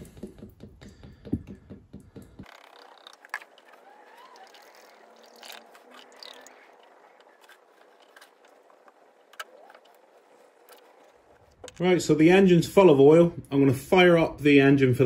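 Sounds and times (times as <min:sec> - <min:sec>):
oil gurgling: 0:02.4 - 0:11.9.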